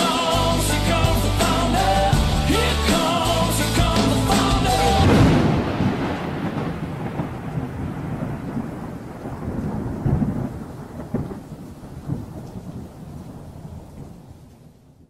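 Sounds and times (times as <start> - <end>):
rumbling crackling explosion: 4.8 - 14.2.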